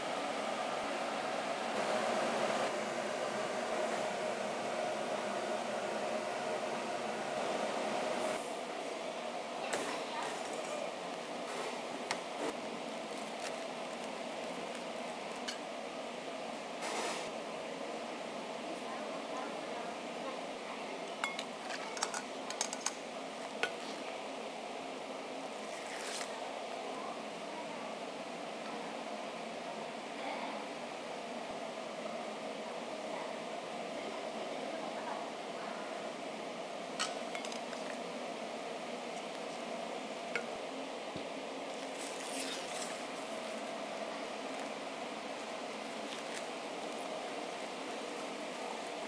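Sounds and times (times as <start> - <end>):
room noise: 0.0 - 17.4, 34.0 - 49.0
factory machinery hum: 0.0 - 21.4, 42.8 - 49.0
plastic pouch rustling: 12.6 - 15.4, 45.4 - 49.0.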